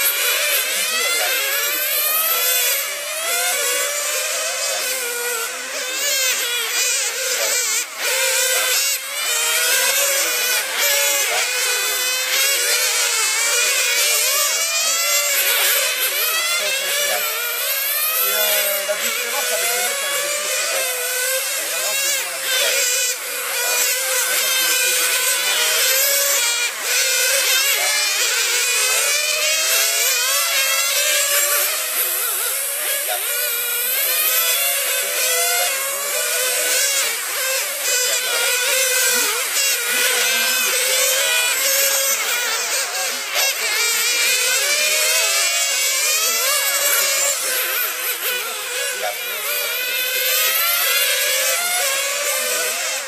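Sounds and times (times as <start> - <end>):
model race car motors whining: 0.0 - 53.0.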